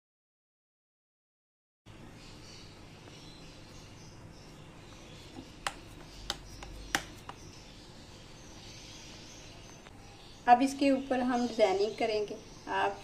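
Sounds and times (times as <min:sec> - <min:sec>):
dough being pressed by hands: 0:05.3 - 0:07.5
sharp clicks: 0:05.6 - 0:07.5.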